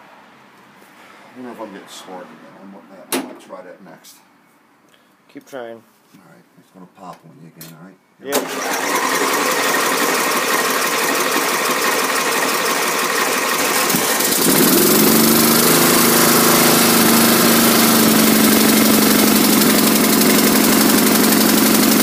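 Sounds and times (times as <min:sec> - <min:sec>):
lawn tractor engine running: 0:08.4 - 0:22.0
lawn tractor starter cranking: 0:08.4 - 0:22.0.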